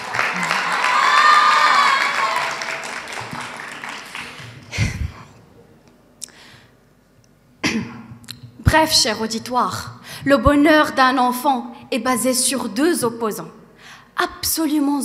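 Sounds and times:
audience applause and cheering: 0:00.0 - 0:04.9.

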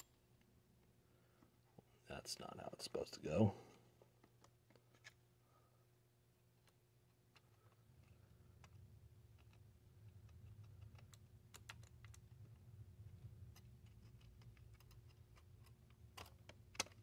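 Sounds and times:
low steady hum: 0:00.0 - 0:17.0
small mechanism clicks and ticks: 0:13.4 - 0:17.0.

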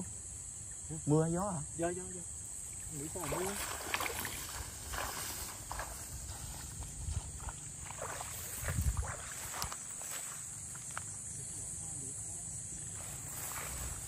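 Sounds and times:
night insects droning: 0:00.0 - 0:14.0
footsteps through tall grass: 0:03.0 - 0:11.2, 0:12.9 - 0:14.0
wind rumbling on microphone: 0:03.1 - 0:09.9.

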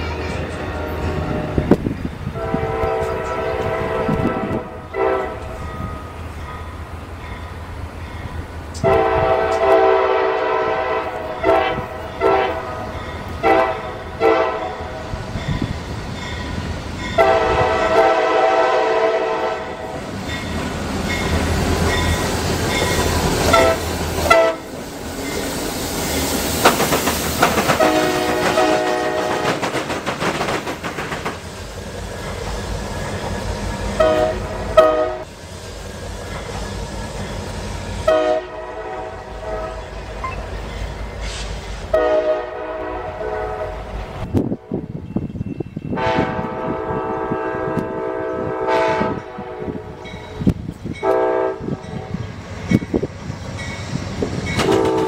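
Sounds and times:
train rumbling on rails: 0:00.0 - 0:55.0
locomotive air horn blasts: 0:02.3 - 0:05.6, 0:08.8 - 0:15.0, 0:17.2 - 0:20.0, 0:23.5 - 0:24.7, 0:27.8 - 0:29.6, 0:34.0 - 0:35.3, 0:38.1 - 0:39.9, 0:41.3 - 0:43.9, 0:45.9 - 0:50.1, 0:51.0 - 0:52.2, 0:54.6 - 0:55.0.

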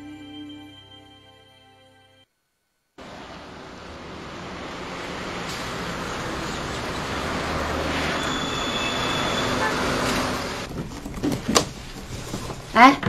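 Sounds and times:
passing vehicles rushing: 0:03.0 - 0:10.7
short high horn tone: 0:08.0 - 0:10.6.

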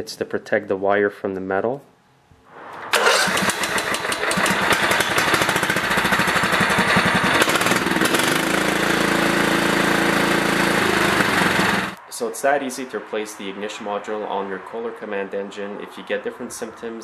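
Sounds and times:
lawn tractor engine running: 0:02.9 - 0:12.0.

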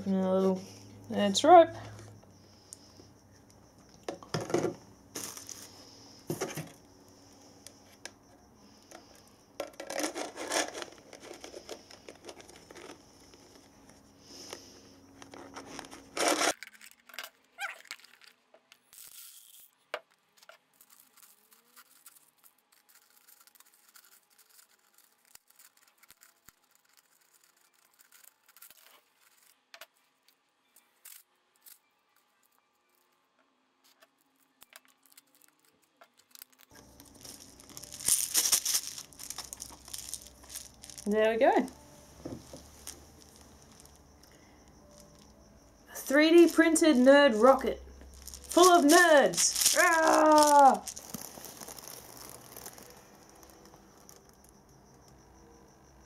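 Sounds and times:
plastic scraping and crinkling: 0:04.3 - 0:06.8, 0:08.9 - 0:13.7, 0:14.4 - 0:41.7, 0:48.1 - 0:54.4
candies ticking against plastic: 0:34.0 - 0:41.8, 0:47.6 - 0:54.5.

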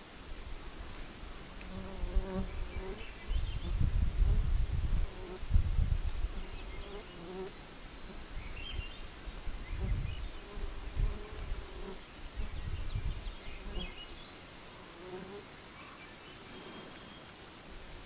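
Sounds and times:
faint bird chirps: 0:00.0 - 0:04.0, 0:15.7 - 0:17.7
fly buzzing: 0:06.3 - 0:08.2, 0:14.7 - 0:15.4.

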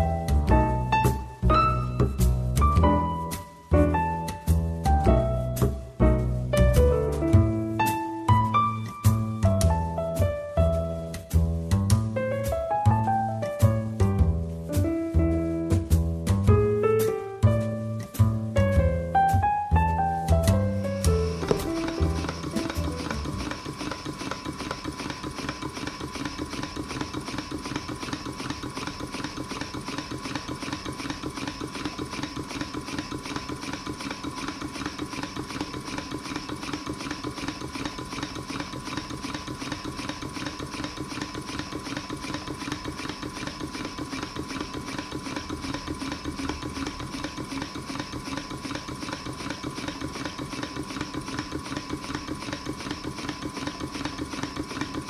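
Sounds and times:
model steam engine running: 0:21.3 - 0:55.0.

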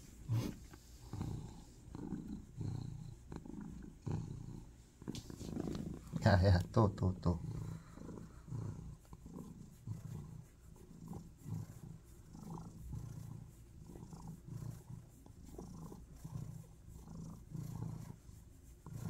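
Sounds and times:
cat purring: 0:00.0 - 0:19.0.

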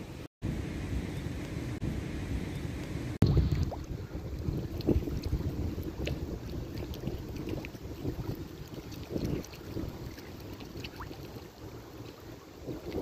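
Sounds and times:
wind buffeting microphone: 0:00.1 - 0:13.0
lake water lapping: 0:03.2 - 0:13.0.

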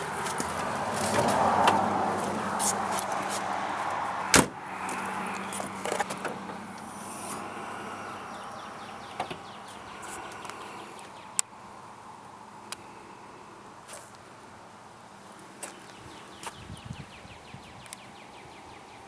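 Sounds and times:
car door slamming: 0:04.3 - 0:04.6.

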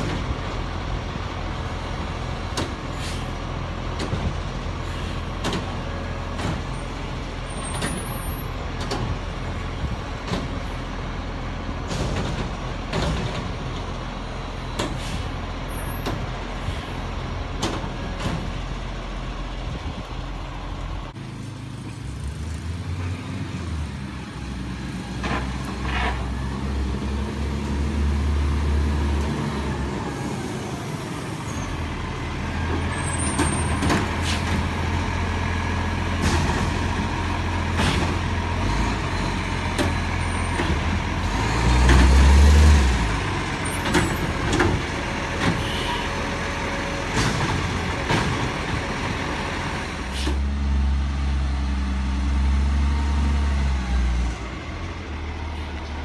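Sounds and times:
garbage truck diesel engine: 0:00.0 - 0:56.0
air brake hisses: 0:02.9 - 0:03.4, 0:14.8 - 0:15.4, 0:50.1 - 0:50.5.

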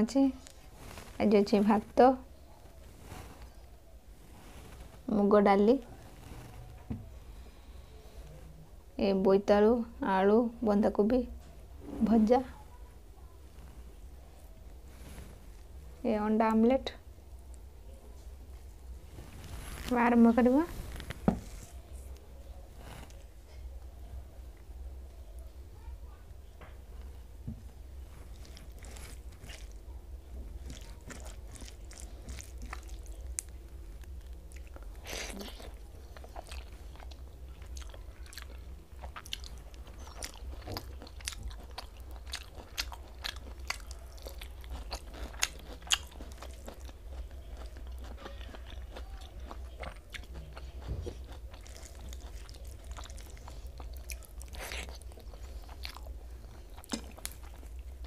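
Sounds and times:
steady low hum: 0:00.0 - 0:58.0
person chewing and smacking: 0:28.2 - 0:58.0.

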